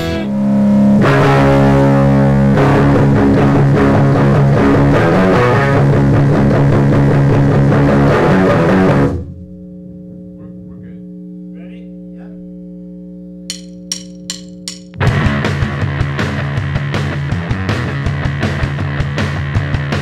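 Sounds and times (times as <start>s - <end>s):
distorted electric guitar riff: 0.0s - 12.7s, 15.0s - 20.0s
amplifier hum: 9.1s - 15.0s.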